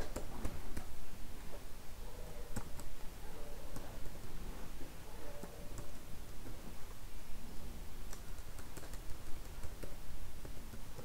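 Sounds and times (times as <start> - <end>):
computer keyboard typing: 8.1 - 10.0.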